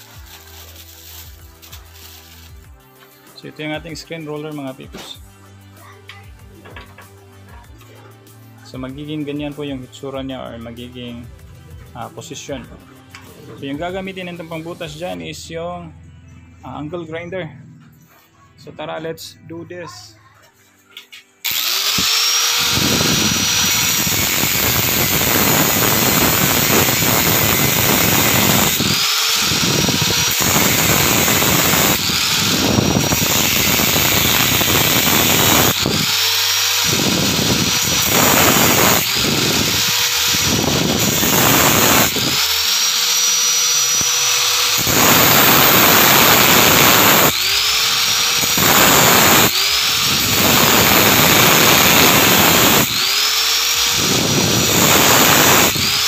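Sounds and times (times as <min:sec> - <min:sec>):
angle grinder whine: 0:21.4 - 0:56.0
grinding disc on frame: 0:21.5 - 0:56.0.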